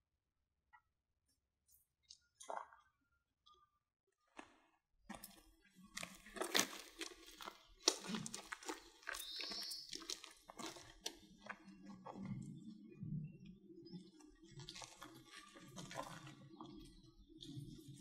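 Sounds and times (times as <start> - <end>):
footsteps on gritty ground: 5.1 - 11.9.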